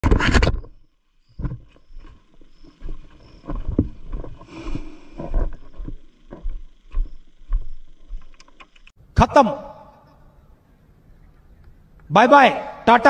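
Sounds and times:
muffled footsteps: 0:01.3 - 0:08.9.

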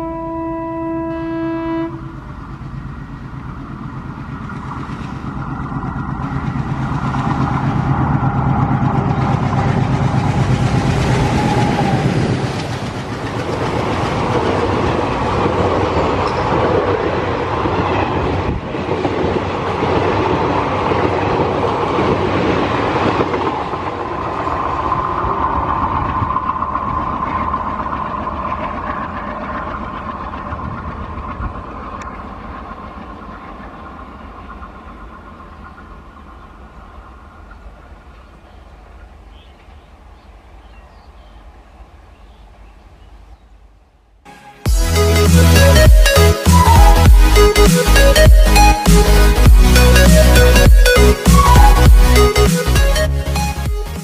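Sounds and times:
diesel locomotive engine running: 0:00.0 - 0:43.4, 0:44.0 - 0:53.8
steady high tone: 0:44.3 - 0:53.8.

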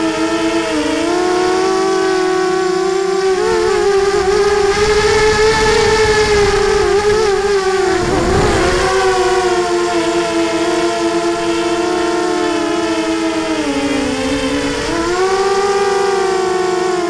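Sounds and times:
quadcopter motor whine: 0:00.0 - 0:17.0
low rush of air: 0:03.7 - 0:10.4.

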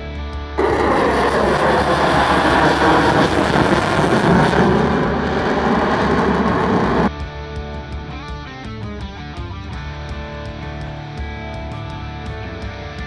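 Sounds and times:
loud jet noise: 0:00.6 - 0:07.1.

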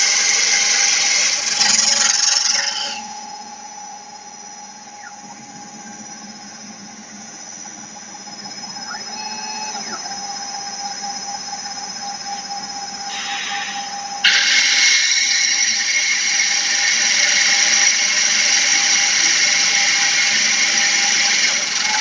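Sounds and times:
drill grinding stone: 0:00.0 - 0:03.2, 0:13.1 - 0:22.0
rising and falling whine: 0:00.0 - 0:22.0
router spindle whining: 0:00.0 - 0:22.0.

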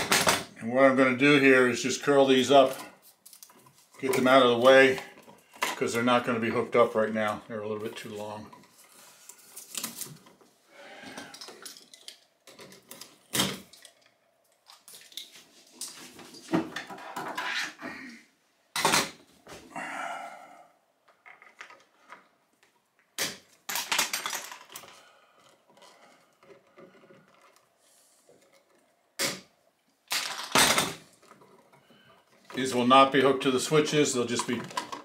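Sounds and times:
wires scraping and rustling: 0:01.2 - 0:17.8, 0:24.0 - 0:29.2, 0:31.0 - 0:35.0.

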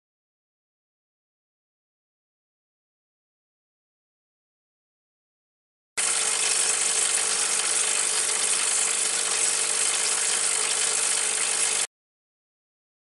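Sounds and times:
espresso machine pump hissing buzz: 0:06.0 - 0:11.9.

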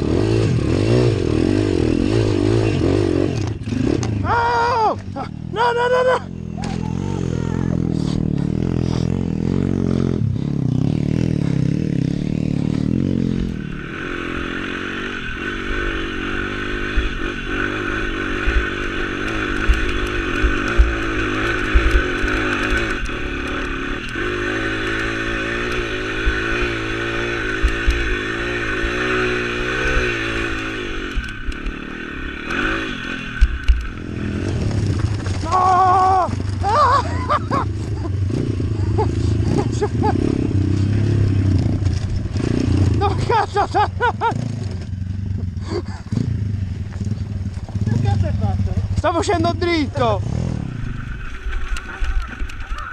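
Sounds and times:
motorbike engine revving: 0:00.0 - 0:52.9
steady high whine: 0:12.6 - 0:35.5
bike and stones clattering: 0:33.5 - 0:37.3.

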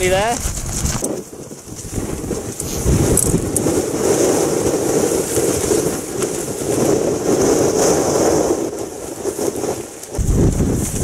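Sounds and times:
strong wind buffeting microphone: 0:00.0 - 0:11.0.

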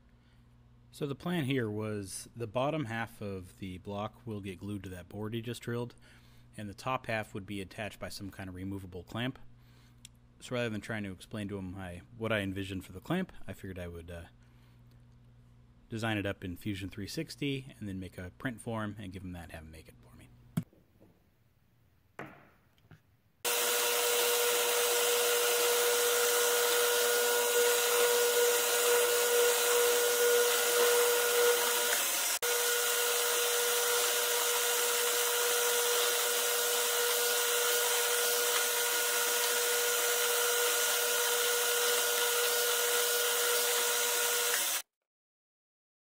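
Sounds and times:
bit drilling into wood: 0:23.4 - 0:44.9
drill press motor humming: 0:23.5 - 0:44.8.

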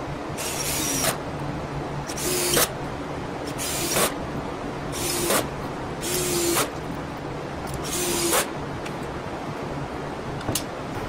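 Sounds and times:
cordless drill whining: 0:00.4 - 0:01.2.

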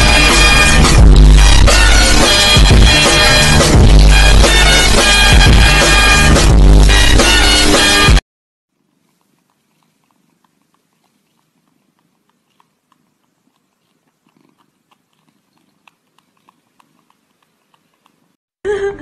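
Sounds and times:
cat wet sucking clicks: 0:08.7 - 0:18.4
faint low purr: 0:08.8 - 0:18.4.

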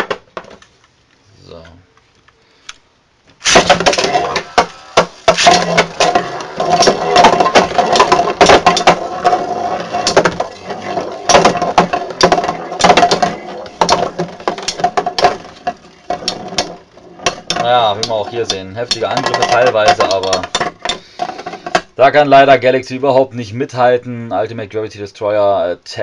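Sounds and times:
spinning tops whirring: 0:03.4 - 0:20.6.

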